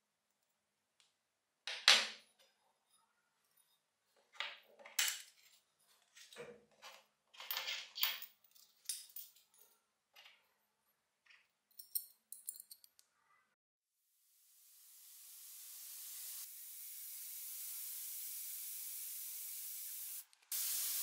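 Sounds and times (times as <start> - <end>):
metal parts clinking on wood: 7.3 - 10.3, 11.3 - 13.0.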